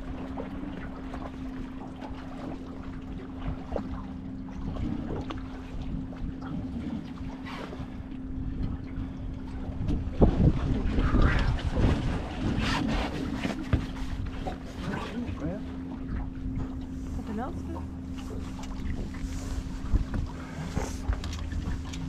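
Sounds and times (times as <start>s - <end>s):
boat motor humming: 0.0s - 22.0s
wind rumbling on microphone: 3.4s - 22.0s.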